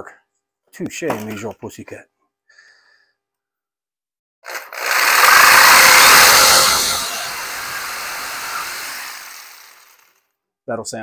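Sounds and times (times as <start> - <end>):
electric jigsaw cutting wood: 4.4 - 10.2.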